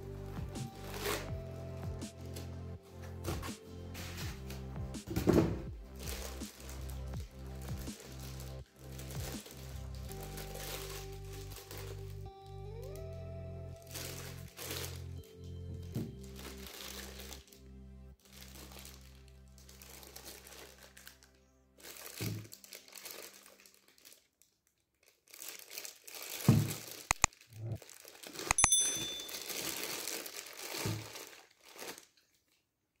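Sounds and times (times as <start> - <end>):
background music with low drone: 0.0 - 22.3
plastic bag crinkling: 6.0 - 12.1, 13.8 - 15.1, 16.3 - 17.5, 18.2 - 32.6
sharp clicks: 27.1 - 27.3.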